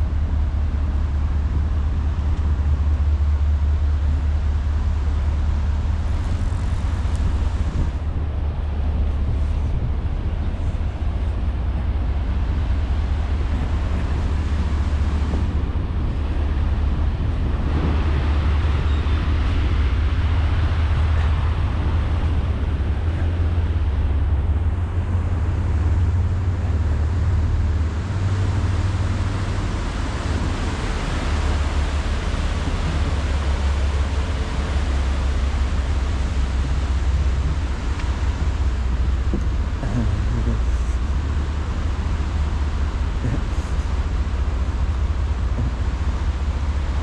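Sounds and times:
heavy low rumble: 0.0s - 47.0s
road traffic rumble and hiss: 0.0s - 47.0s.

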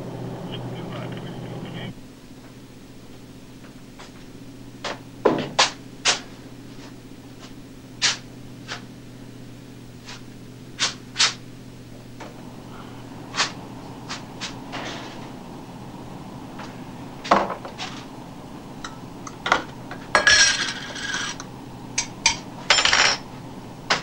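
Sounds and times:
low machinery hum: 0.0s - 24.0s.

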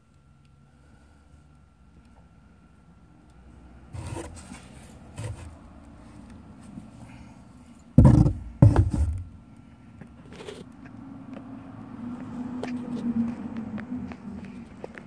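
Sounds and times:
soft handling rustles: 4.0s - 9.3s
loud dull bumps: 8.0s - 9.4s.

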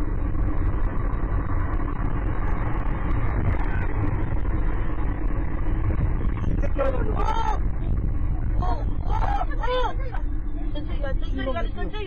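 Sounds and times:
car road and engine noise: 0.0s - 12.0s.

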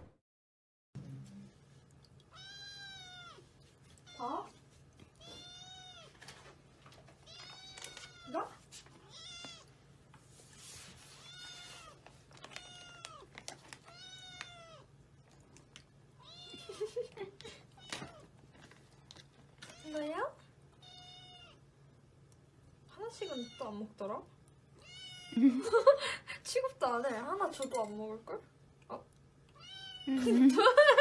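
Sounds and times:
kitten meowing: 2.3s - 3.4s, 5.2s - 6.1s, 20.8s - 21.6s, 24.8s - 25.4s, 29.6s - 30.1s.

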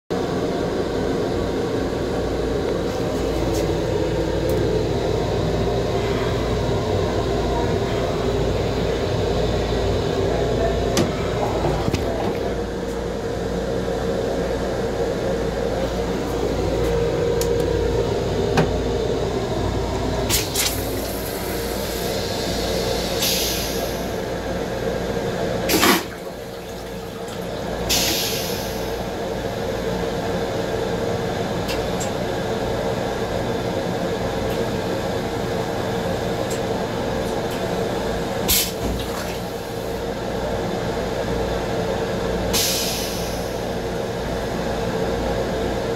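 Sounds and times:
railcar hum and rumble: 0.1s - 45.9s
toilet flushing: 19.9s - 29.3s, 37.3s - 40.1s.

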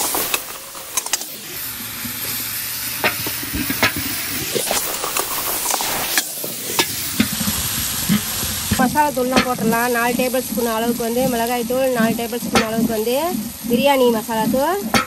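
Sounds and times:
food sizzling in oil: 0.0s - 15.0s
wooden paddle scraping a pot: 3.0s - 15.0s.

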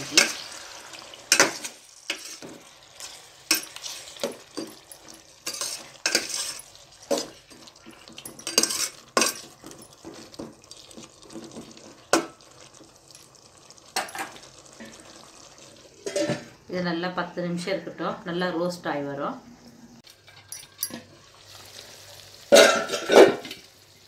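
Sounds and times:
spoon clanking and scraping pot: 0.0s - 0.6s, 1.3s - 13.4s, 14.0s - 15.1s, 16.0s - 16.6s, 20.1s - 21.2s, 22.5s - 23.6s
chicken sizzling in oil: 0.0s - 16.7s, 21.0s - 24.0s.

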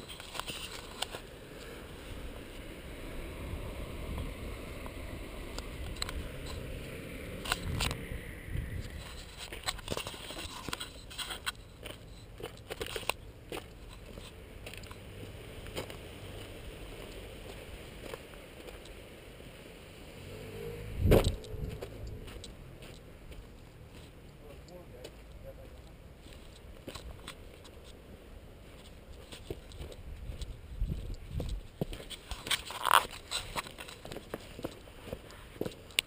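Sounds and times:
wind rumble on microphone: 1.8s - 10.6s, 20.2s - 22.8s, 29.7s - 32.6s
footsteps crunching on gravel: 8.9s - 18.9s, 21.1s - 36.0s.

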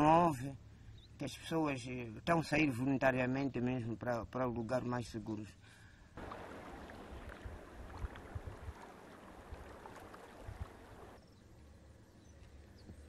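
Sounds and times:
rushing floodwater: 6.2s - 11.2s
wind buffeting microphone: 6.2s - 11.2s.

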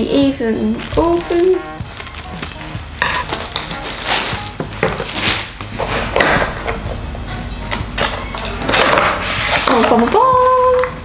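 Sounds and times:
plastic wrap crinkling: 0.0s - 6.7s
scissors cutting plastic wrap: 0.6s - 6.8s, 8.0s - 10.3s.

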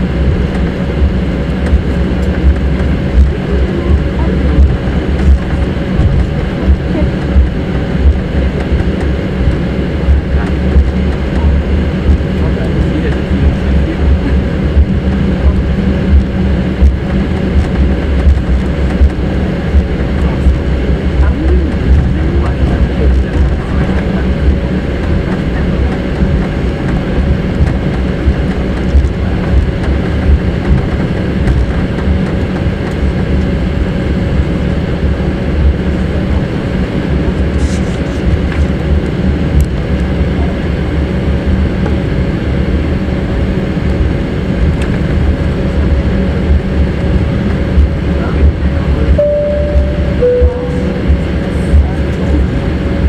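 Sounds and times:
airframe and wheels rumble: 0.0s - 53.0s
jet engines at taxi power: 0.0s - 53.0s
two-note falling chime: 49.2s - 51.2s.

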